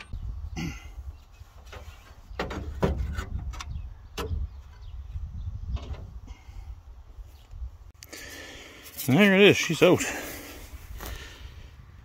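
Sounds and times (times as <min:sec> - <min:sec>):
metal scraping and knocking: 0:01.6 - 0:04.9.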